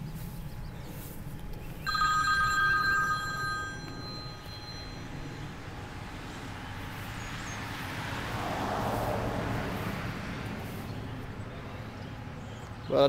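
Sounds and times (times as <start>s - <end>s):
steady low rumble: 0.0s - 12.5s
passing car tyre noise: 2.5s - 12.9s.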